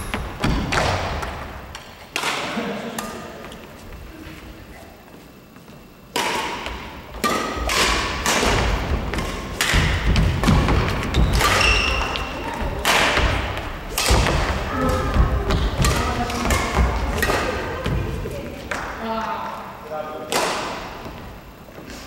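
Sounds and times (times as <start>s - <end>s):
rackets hitting shuttlecock: 0.1s - 3.6s, 6.1s - 19.0s, 20.2s - 21.2s.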